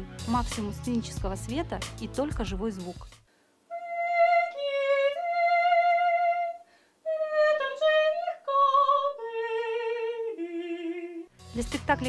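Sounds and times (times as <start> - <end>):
woman singing unaccompanied: 3.7 - 12.0.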